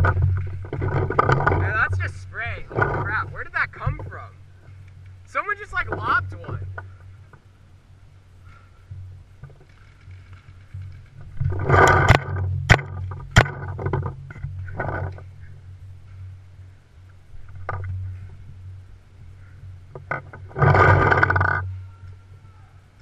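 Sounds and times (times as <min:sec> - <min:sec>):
low wind rumble: 0:00.0 - 0:23.0
rustling on microphone: 0:00.0 - 0:23.0.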